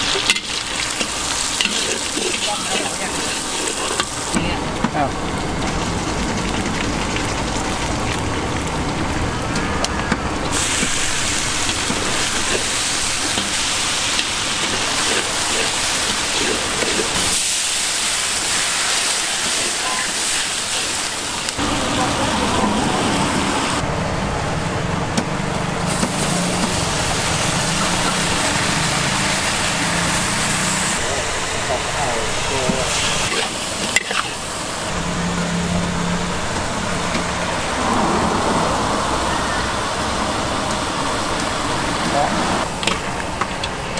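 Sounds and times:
oil sizzling in a wok: 0:00.0 - 0:09.6, 0:10.4 - 0:23.8, 0:25.8 - 0:37.9
metal spatula stirring: 0:00.1 - 0:04.3, 0:10.8 - 0:17.6, 0:33.2 - 0:34.4
low rumble: 0:35.7 - 0:41.7.

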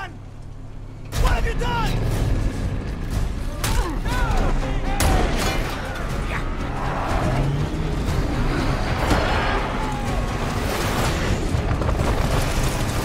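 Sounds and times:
action film music: 0:00.0 - 0:13.0
vehicle engines rumbling: 0:00.0 - 0:13.0
people whooping: 0:09.3 - 0:10.5.

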